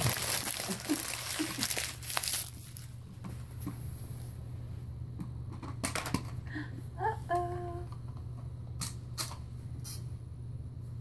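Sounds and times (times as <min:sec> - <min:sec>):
paper crinkling: 0:00.0 - 0:03.0
steady low hum: 0:00.0 - 0:11.0.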